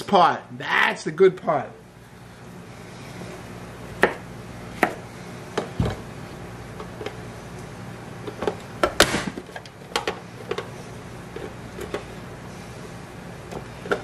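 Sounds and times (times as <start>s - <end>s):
knife chopping on cutting board: 4.0s - 4.2s, 4.8s - 5.0s.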